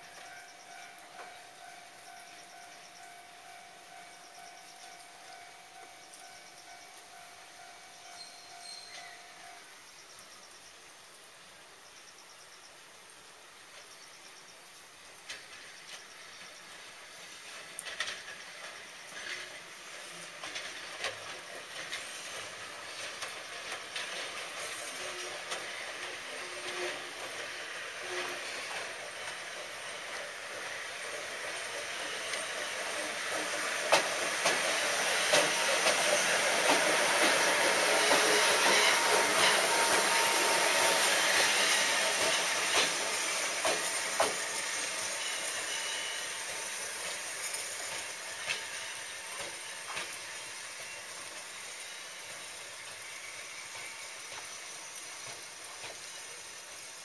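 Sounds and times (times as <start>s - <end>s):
electric locomotives passing: 0.0s - 11.8s, 13.2s - 57.0s
rain hiss: 0.0s - 57.0s
wheels clicking over rail joints: 15.1s - 57.0s.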